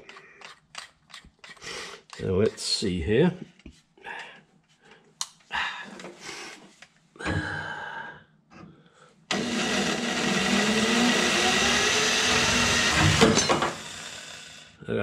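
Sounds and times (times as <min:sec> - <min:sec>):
electric drill drilling metal: 0:09.3 - 0:14.8.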